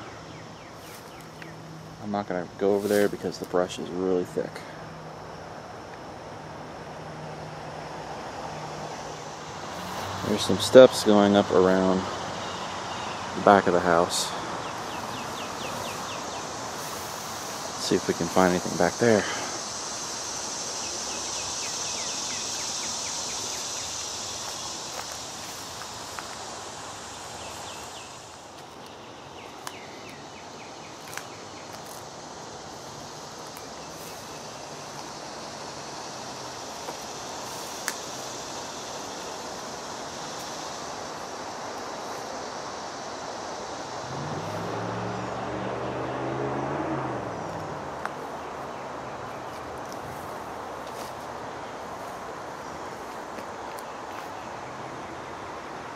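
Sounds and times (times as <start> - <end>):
high insect hiss: 0.0 - 55.9
footsteps through weeds and brush: 0.8 - 1.5, 24.4 - 26.4, 31.0 - 32.1, 32.7 - 34.4, 49.3 - 52.3, 53.0 - 54.4
vehicle engine droning past: 6.4 - 19.6, 42.7 - 49.4
bird calling: 12.3 - 18.1
twigs snapping: 28.6 - 30.2, 31.0 - 32.0, 37.8 - 38.1.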